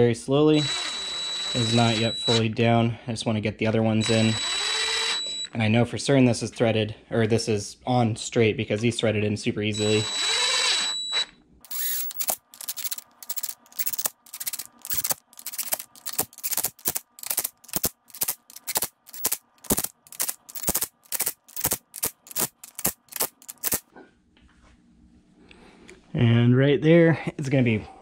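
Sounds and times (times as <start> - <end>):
hand ratchet clicking: 11.7 - 23.9.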